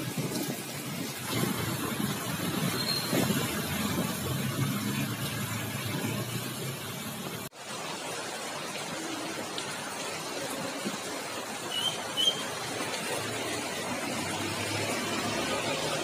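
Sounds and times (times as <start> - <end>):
heavy rain on wet road: 0.0 - 16.0.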